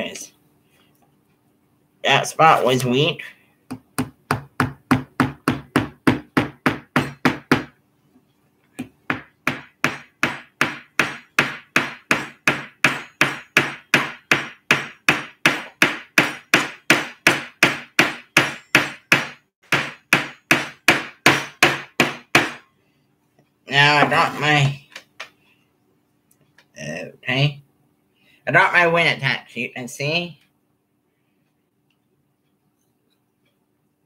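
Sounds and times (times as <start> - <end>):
hammer tapping nail into wood: 8.8 - 22.6.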